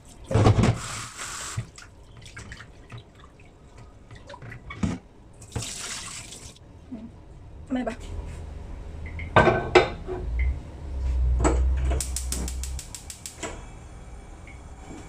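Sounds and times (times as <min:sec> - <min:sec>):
gas stove igniter clicking: 0:12.0 - 0:13.6.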